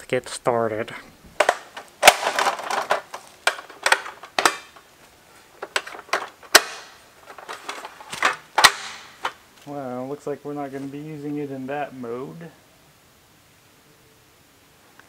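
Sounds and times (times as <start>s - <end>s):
metal ladder clicks and clanks: 1.4s - 4.9s, 5.6s - 9.4s.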